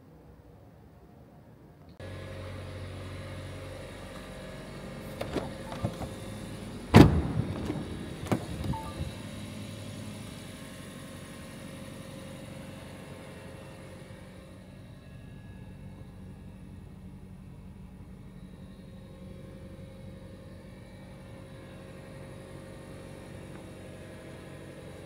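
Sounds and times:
car mechanical hum: 0:00.0 - 0:25.0
loud thump: 0:07.0 - 0:08.7.

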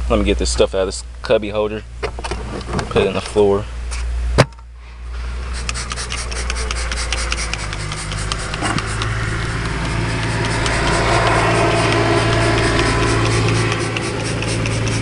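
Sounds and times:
low steady hum: 0:00.0 - 0:15.0
rapid rubbing and scraping: 0:05.4 - 0:15.0.

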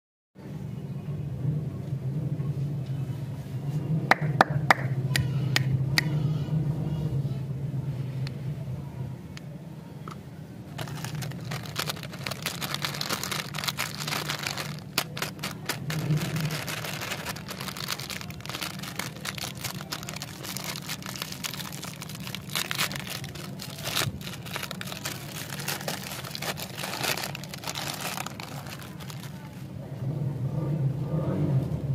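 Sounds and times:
plastic wrapper crinkling: 0:10.8 - 0:29.6.

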